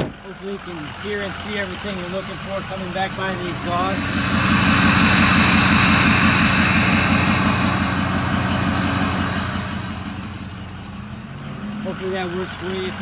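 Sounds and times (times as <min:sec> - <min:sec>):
truck engine idling exhaust: 0:00.0 - 0:13.0
exhaust hiss: 0:02.4 - 0:11.0.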